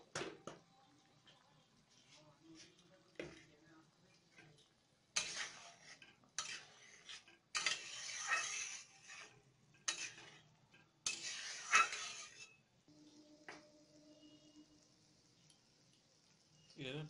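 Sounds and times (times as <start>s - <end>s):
oil sizzling: 0.0s - 17.0s
metal spatula scraping a pan: 4.2s - 12.7s.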